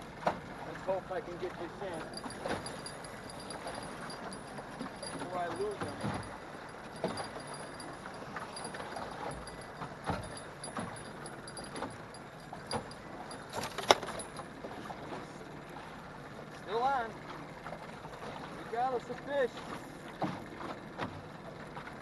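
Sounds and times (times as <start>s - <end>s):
choppy water: 0.0s - 22.0s
wind: 0.0s - 22.0s
fishing gear knocking and clicking: 2.0s - 14.5s.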